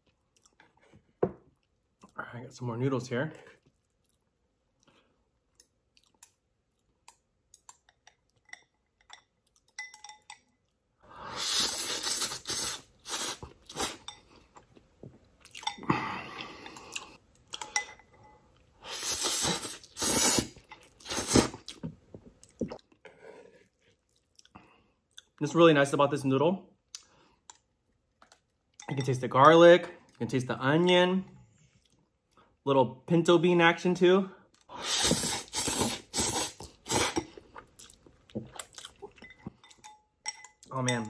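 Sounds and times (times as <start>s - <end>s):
chewing: 3.5s - 9.8s, 20.8s - 25.4s, 35.8s - 40.0s
slurping noodles: 11.2s - 14.1s, 18.8s - 21.8s, 34.7s - 37.5s.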